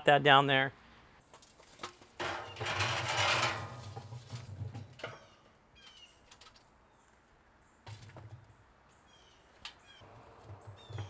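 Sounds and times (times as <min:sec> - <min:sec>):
coals clattering into metal basket: 0:01.6 - 0:05.3.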